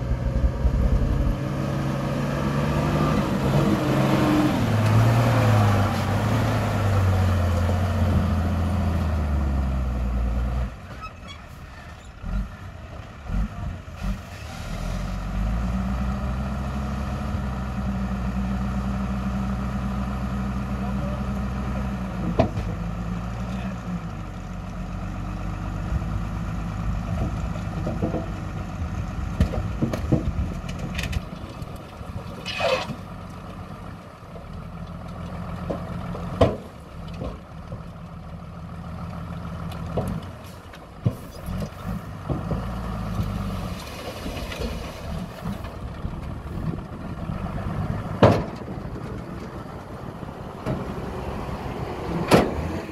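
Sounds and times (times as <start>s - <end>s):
diesel truck engine running: 15.0s - 52.9s.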